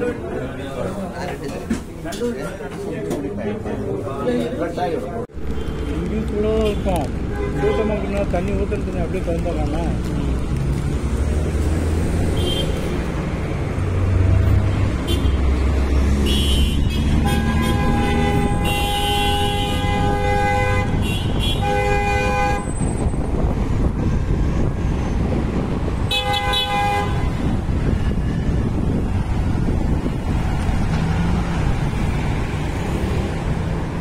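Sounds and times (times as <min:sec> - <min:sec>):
road traffic rumble: 0:00.0 - 0:34.0
vehicle horn honking: 0:12.4 - 0:12.8, 0:15.0 - 0:15.4, 0:16.2 - 0:22.8, 0:26.1 - 0:27.4.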